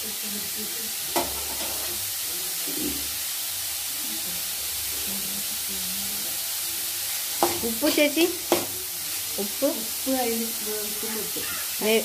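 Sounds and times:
food sizzling in oil: 0:00.0 - 0:12.0.

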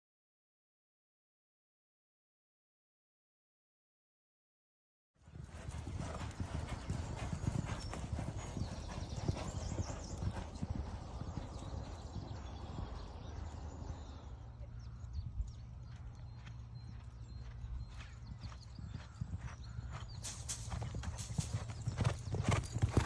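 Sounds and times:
horse galloping hoofbeats: 0:05.2 - 0:14.2, 0:15.4 - 0:23.0.

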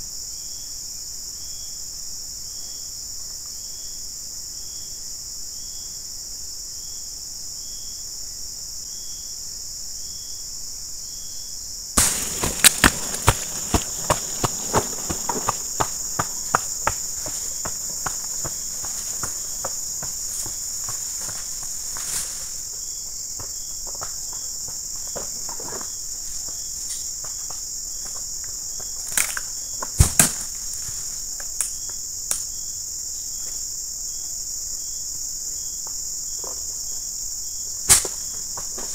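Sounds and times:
high-pitched insect chorus: 0:00.0 - 0:38.9
short insect chirp: 0:00.0 - 0:38.9
twigs crackling and snapping: 0:12.0 - 0:16.6, 0:29.0 - 0:32.4.

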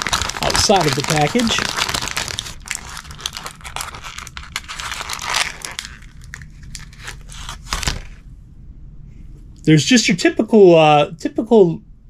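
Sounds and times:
plastic package crinkling: 0:00.0 - 0:08.2.

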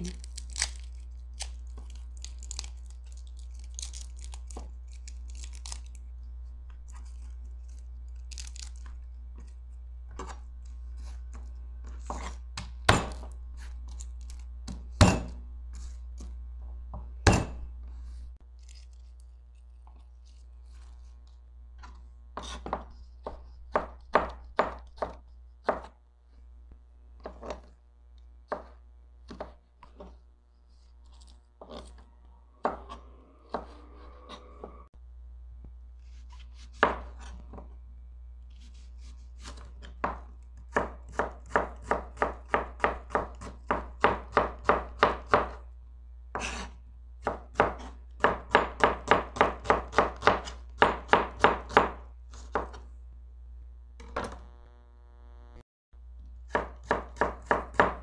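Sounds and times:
low steady hum: 0:00.0 - 0:58.0
knife chopping on plastic board: 0:28.5 - 0:30.1, 0:36.6 - 0:37.6, 0:39.4 - 0:45.6, 0:46.3 - 0:52.8, 0:56.5 - 0:58.0.

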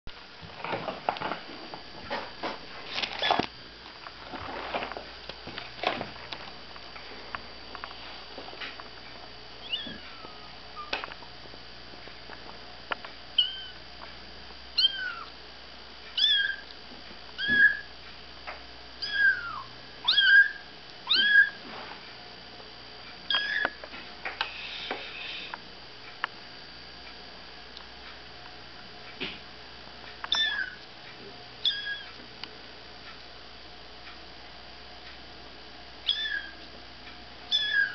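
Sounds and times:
kitten mewing: 0:13.4 - 0:13.8, 0:14.8 - 0:15.3, 0:19.0 - 0:21.6, 0:23.3 - 0:23.8, 0:30.3 - 0:30.8, 0:31.6 - 0:32.1, 0:36.1 - 0:36.6, 0:37.5 - 0:37.9.

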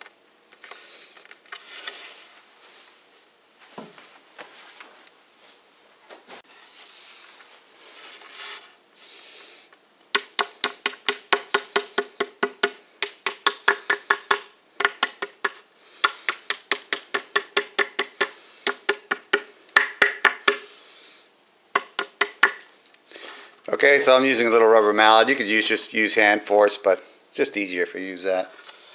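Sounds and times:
rubber mallet tapping wood: 0:10.1 - 0:20.6, 0:21.8 - 0:22.6.

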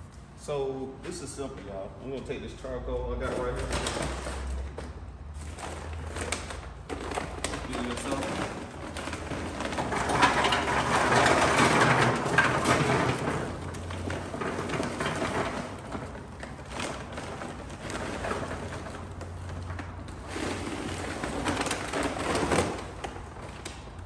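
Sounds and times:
charcoal briquettes pouring into metal: 0:05.4 - 0:23.8.

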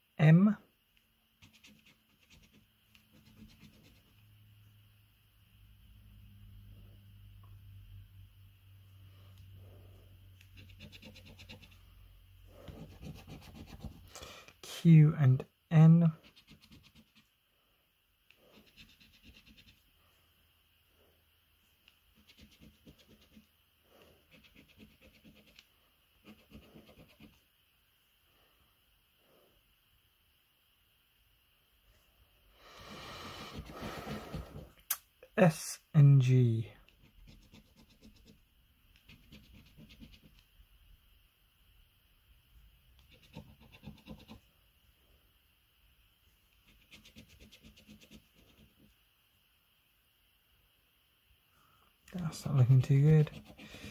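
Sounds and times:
coin scratching a scratchcard: 0:01.4 - 0:04.1, 0:10.5 - 0:11.8, 0:12.7 - 0:14.1, 0:16.2 - 0:17.2, 0:18.5 - 0:19.8, 0:22.2 - 0:23.5, 0:24.3 - 0:25.6, 0:26.2 - 0:27.4, 0:36.9 - 0:38.4, 0:39.0 - 0:40.4, 0:43.0 - 0:44.4, 0:46.6 - 0:48.7, 0:53.0 - 0:53.9.

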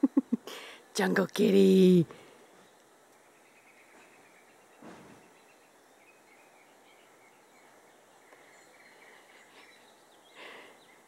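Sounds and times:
faint bird chirps: 0:02.4 - 0:11.0.

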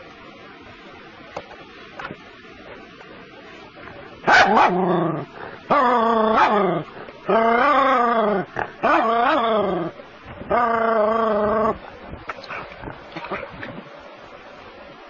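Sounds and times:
puppy barking: 0:04.3 - 0:04.9, 0:06.3 - 0:06.7, 0:08.8 - 0:09.1.

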